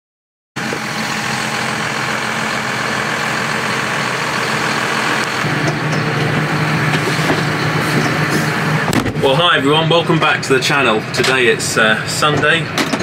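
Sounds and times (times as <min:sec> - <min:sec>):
tractor diesel engine running: 0:00.6 - 0:13.0.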